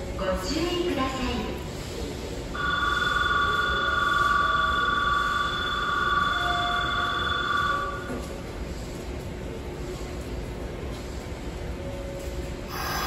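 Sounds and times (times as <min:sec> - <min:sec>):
electronic departure bell ringing: 0:02.6 - 0:08.1.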